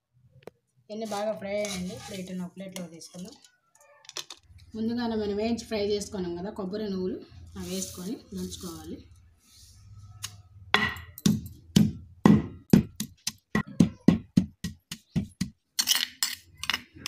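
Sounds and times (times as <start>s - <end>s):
pestle pounding in stone mortar: 10.8s - 15.6s.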